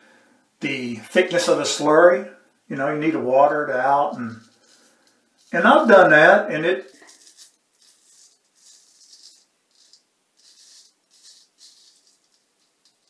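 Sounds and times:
razor scraping stubble: 6.9s - 12.4s.

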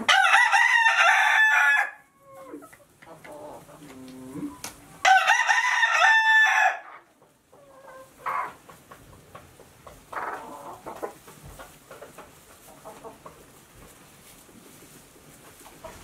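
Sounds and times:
rooster crowing: 0.1s - 2.0s, 5.0s - 6.8s
hens clucking: 1.1s - 5.0s, 6.8s - 16.0s.

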